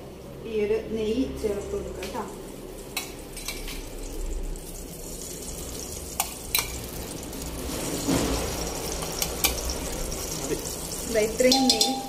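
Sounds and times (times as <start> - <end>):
spoon clinking on metal: 11.4 - 12.0.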